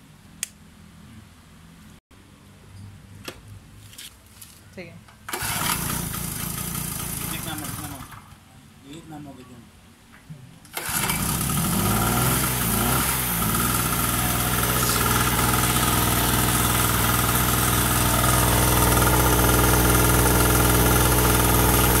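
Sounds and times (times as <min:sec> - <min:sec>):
recoil starter pull: 0:05.3 - 0:08.3, 0:10.7 - 0:22.0
two-stroke generator engine running: 0:05.3 - 0:08.4, 0:10.7 - 0:22.0.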